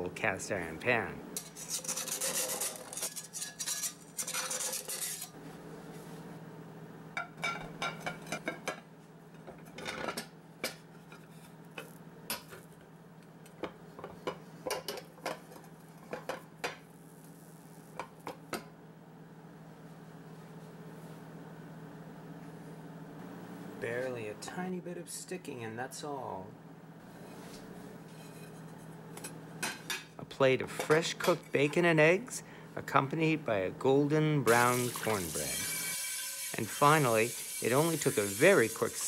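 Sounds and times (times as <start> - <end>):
scraping cast iron skillet: 1.4 - 5.4, 34.5 - 39.0.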